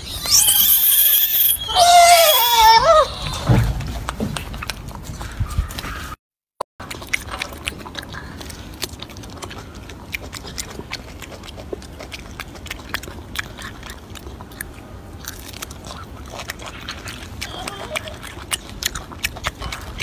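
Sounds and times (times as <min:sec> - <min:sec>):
monkey chewing and biting: 0:00.0 - 0:06.1, 0:06.8 - 0:20.0.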